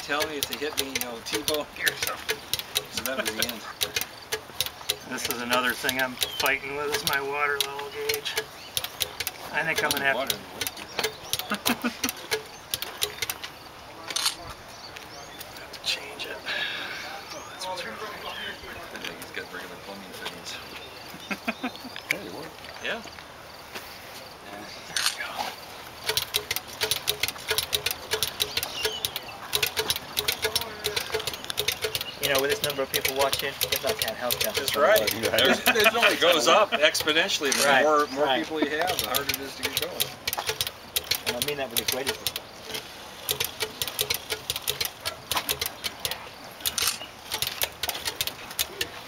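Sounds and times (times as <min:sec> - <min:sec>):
sharp mechanical clicking: 0:00.0 - 0:14.4, 0:26.0 - 0:37.8, 0:38.7 - 0:49.0.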